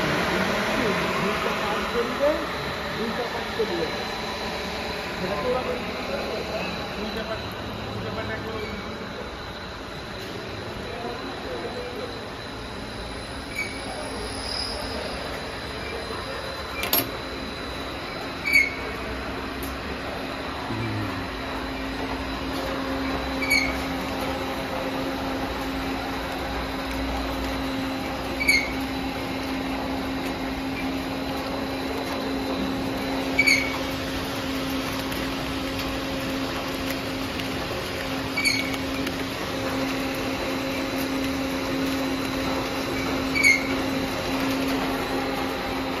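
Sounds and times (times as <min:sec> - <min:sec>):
snack machine humming: 0:18.8 - 0:46.0.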